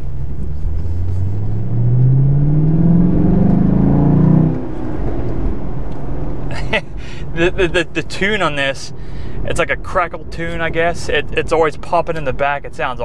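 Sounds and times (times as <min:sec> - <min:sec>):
car engine accelerating: 0:00.0 - 0:08.1.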